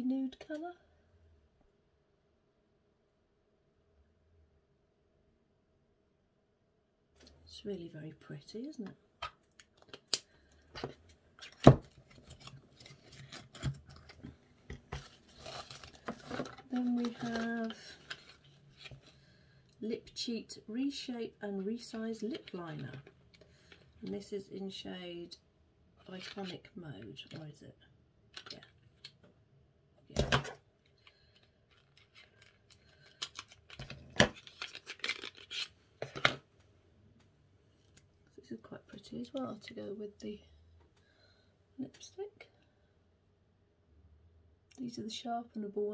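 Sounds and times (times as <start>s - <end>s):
packaging rustling: 9.6s - 19.2s, 31.0s - 36.3s
pencil handled in cardboard box: 10.7s - 19.1s.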